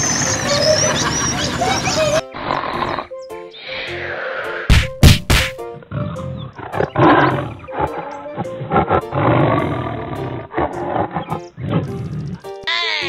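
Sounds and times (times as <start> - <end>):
light background music: 0.0 - 13.0
lion roaring: 5.8 - 12.6.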